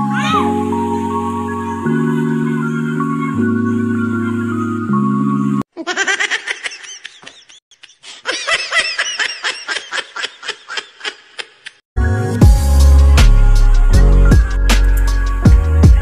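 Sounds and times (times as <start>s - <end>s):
background music: 0.0s - 5.6s, 12.0s - 16.0s
snickering laughter: 5.8s - 11.8s.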